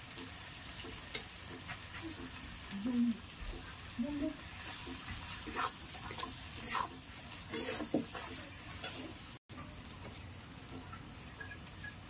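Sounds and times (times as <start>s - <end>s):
food sizzling in oil: 0.0s - 12.0s
spatula scraping a pan: 0.6s - 2.7s, 4.4s - 9.4s.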